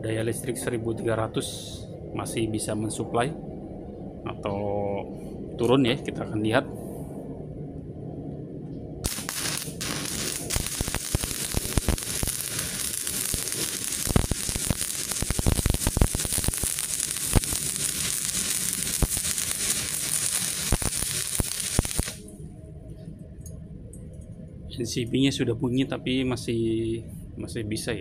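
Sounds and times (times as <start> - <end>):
welding arc crackling and popping: 9.0 - 22.2.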